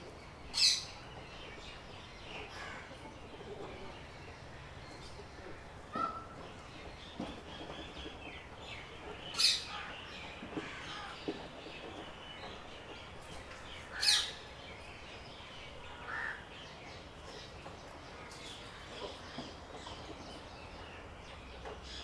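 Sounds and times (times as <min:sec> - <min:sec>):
birds chirping and calling: 0:00.0 - 0:22.0
harsh bird calls: 0:00.4 - 0:16.8.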